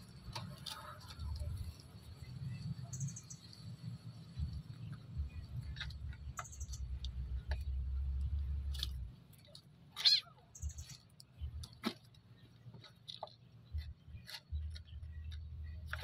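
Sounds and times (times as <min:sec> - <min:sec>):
kitten meowing: 0:10.0 - 0:10.4.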